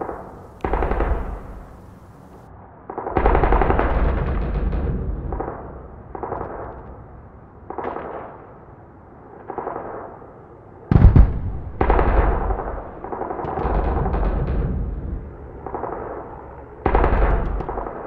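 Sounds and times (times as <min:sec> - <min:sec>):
automatic gunfire bursts: 0:00.0 - 0:02.0
loud bang: 0:10.9 - 0:15.3.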